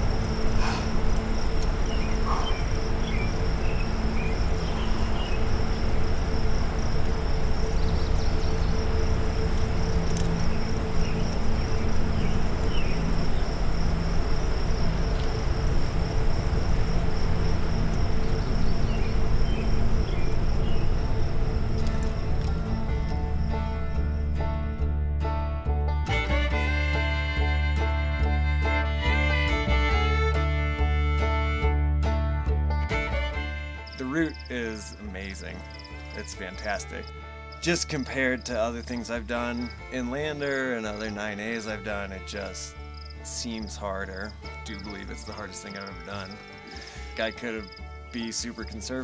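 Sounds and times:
faint chirps: 0.0s - 6.0s
insects trilling: 0.0s - 24.9s, 33.0s - 49.0s
low rumble: 0.0s - 26.0s.

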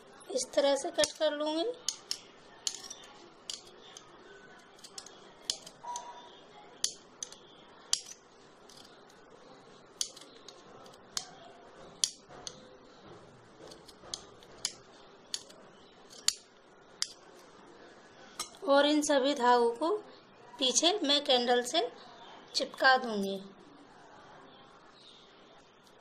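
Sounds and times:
scissors snipping cords: 4.7s - 6.1s, 6.8s - 9.0s, 10.0s - 11.4s, 13.6s - 17.3s.

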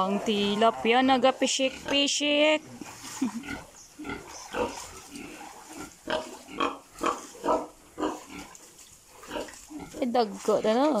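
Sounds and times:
pig grunting: 0.0s - 8.6s.

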